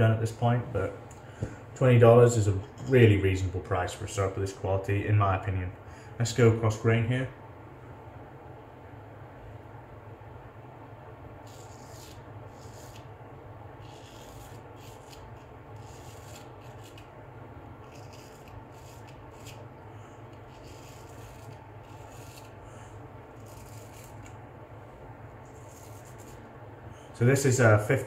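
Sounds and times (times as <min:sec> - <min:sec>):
razor scraping stubble: 0:11.4 - 0:13.1, 0:13.8 - 0:17.1, 0:17.8 - 0:19.7, 0:20.3 - 0:22.6, 0:23.4 - 0:24.4, 0:25.4 - 0:26.4.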